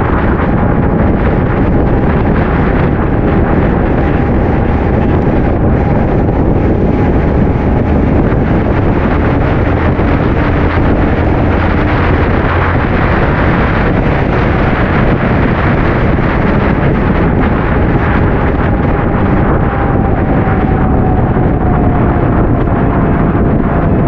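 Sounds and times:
motorcycle engine: 0:00.0 - 0:24.0
road noise: 0:00.0 - 0:24.0
wind buffeting on microphone: 0:00.0 - 0:24.0
faint tone dropping in pitch: 0:16.9 - 0:24.0.

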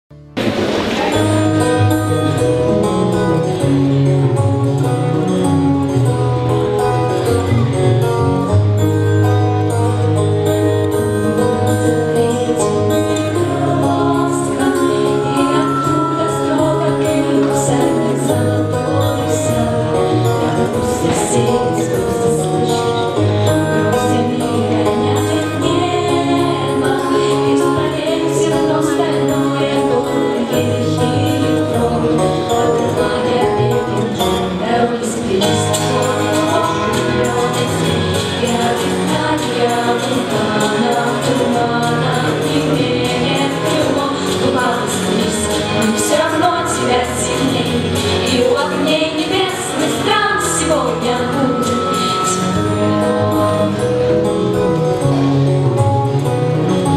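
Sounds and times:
instrumental backing with bass line: 0:00.1 - 0:56.9
girls singing in harmony: 0:12.0 - 0:54.2.

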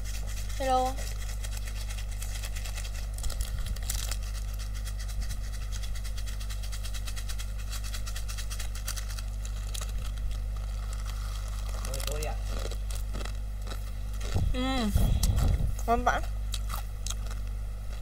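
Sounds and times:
low electrical hum: 0:00.0 - 0:18.0
plastic packet crinkling: 0:01.1 - 0:06.2, 0:07.3 - 0:14.5.

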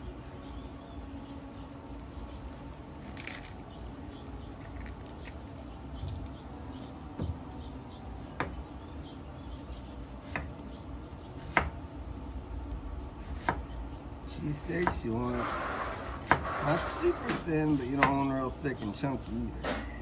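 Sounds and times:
steady low hum: 0:00.0 - 0:20.0
onion skin crackling: 0:01.4 - 0:06.5.

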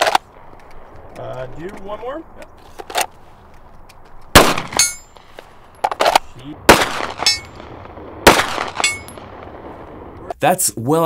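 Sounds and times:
pistol shots: 0:04.3 - 0:09.7
steel target clanging: 0:04.5 - 0:05.2, 0:07.0 - 0:07.6, 0:08.6 - 0:09.2.

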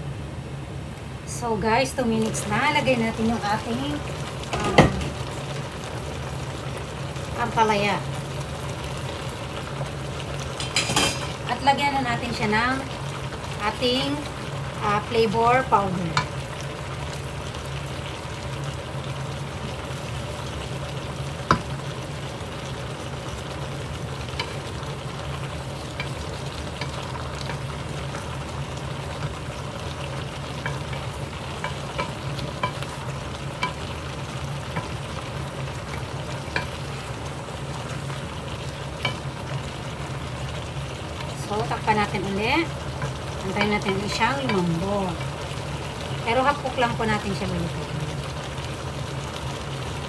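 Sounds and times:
vegetables sizzling in a wok: 0:00.0 - 0:50.0
spatula knocking and scraping pan: 0:04.5 - 0:05.2, 0:21.5 - 0:21.7.

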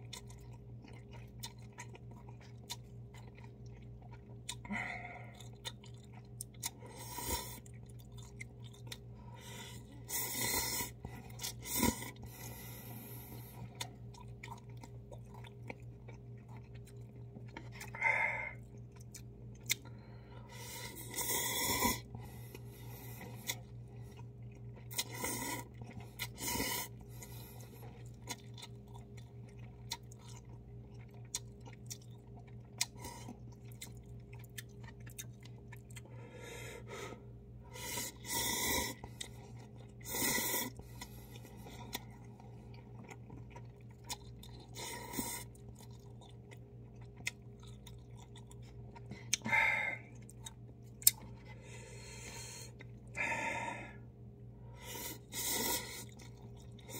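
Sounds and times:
chewing and mouth clicks: 0:00.0 - 0:20.0, 0:20.6 - 0:36.2, 0:37.8 - 0:51.6, 0:52.2 - 0:53.2, 0:54.8 - 0:56.9
steady low hum: 0:00.0 - 0:56.9
person slurping noodles: 0:40.0 - 0:40.8.

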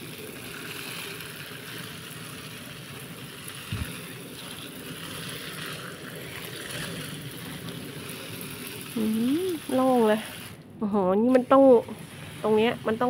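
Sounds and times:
water spraying on a plant: 0:00.0 - 0:10.6, 0:11.2 - 0:13.0.

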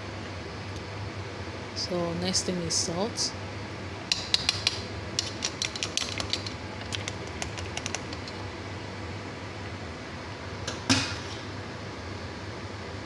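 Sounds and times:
utensils clicking on steel pot: 0:04.1 - 0:08.4.

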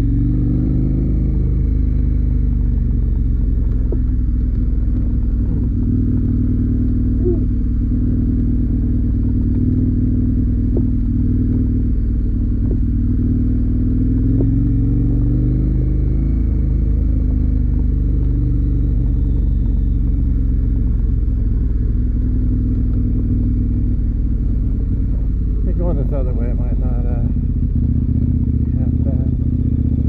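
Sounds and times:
motorcycle engine running: 0:00.0 - 0:30.0.

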